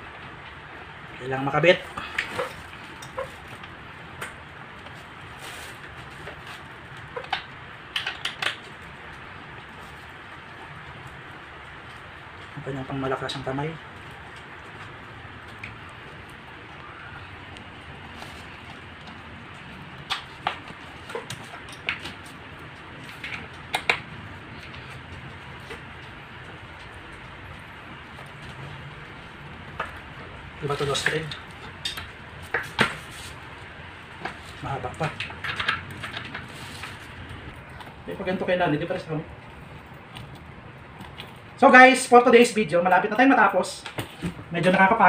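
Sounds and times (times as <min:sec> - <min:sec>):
steady background hiss: 0:00.0 - 0:45.0.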